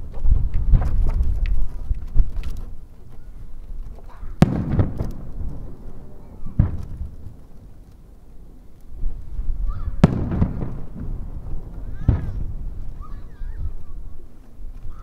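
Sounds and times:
sharp crack: 3.8 - 13.2
firework shells bursting: 4.3 - 13.2
loud firework boom: 4.4 - 5.8, 9.9 - 12.8.

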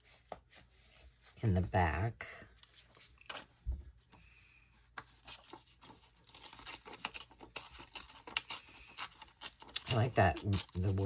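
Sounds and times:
paper rustling and scraping: 2.6 - 3.8, 4.8 - 11.0.

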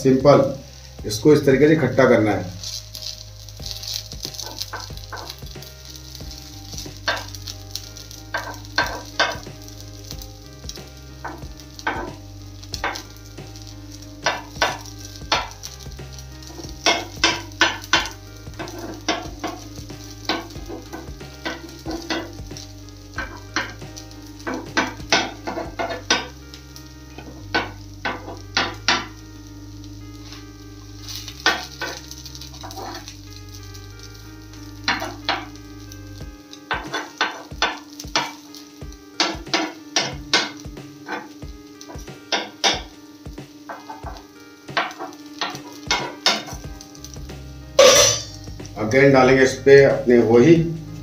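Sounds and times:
snack sizzling in oiled pan: 0.0 - 51.0
spatula clinking and scraping metal: 2.6 - 9.6, 11.2 - 13.1, 14.2 - 22.6, 23.2 - 26.4, 31.0 - 33.2, 34.8 - 35.6, 36.7 - 38.6, 39.2 - 42.9, 43.7 - 46.7, 47.8 - 48.4.

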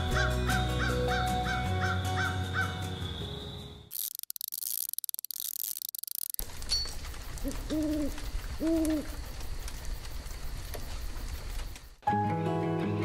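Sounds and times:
owl hooting: 7.4 - 9.2.

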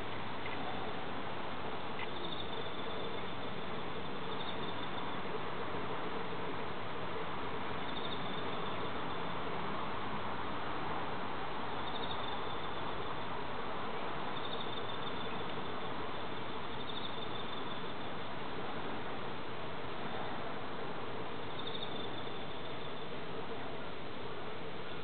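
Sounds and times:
steady background hiss: 0.0 - 25.0
insects trilling: 2.0 - 5.2, 7.8 - 9.2, 11.8 - 13.1, 14.4 - 18.0, 21.4 - 23.1.

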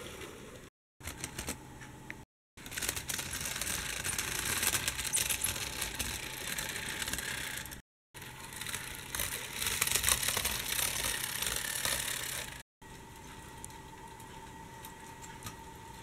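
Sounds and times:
model train wheels clicking on rails: 2.6 - 7.8, 8.4 - 12.6.

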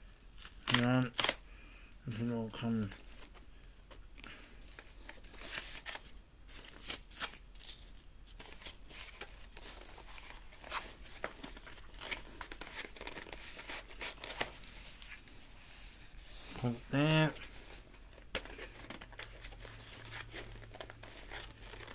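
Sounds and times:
cardboard tearing: 0.4 - 1.4, 18.4 - 21.9.

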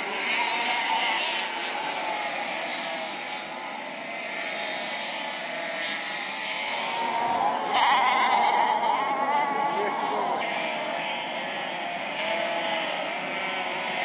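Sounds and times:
sheep bleating: 0.0 - 14.0.

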